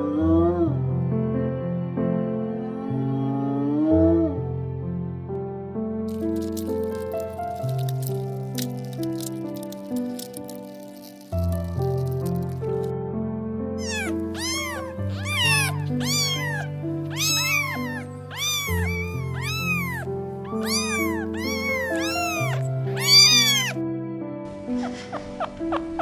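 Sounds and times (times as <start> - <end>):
cat meowing: 13.8 - 23.8.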